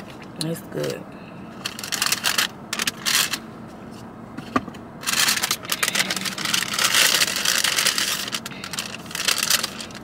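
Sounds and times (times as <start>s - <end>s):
paper bag rustling: 5.0s - 10.0s.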